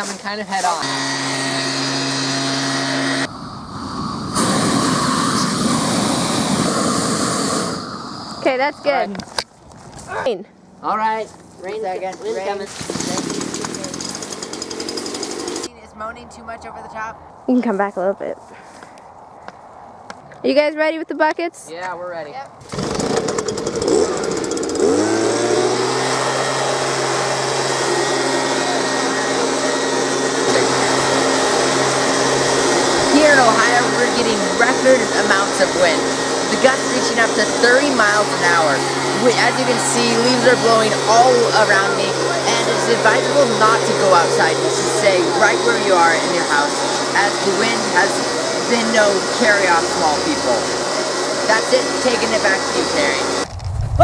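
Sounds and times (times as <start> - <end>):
leaf blower running: 0.0 - 9.2, 11.7 - 15.7, 22.6 - 54.0
motor drone with hiss: 0.6 - 9.2, 12.5 - 15.7, 22.7 - 53.9
propane torch roaring: 0.8 - 9.3, 12.7 - 15.7, 22.6 - 54.0.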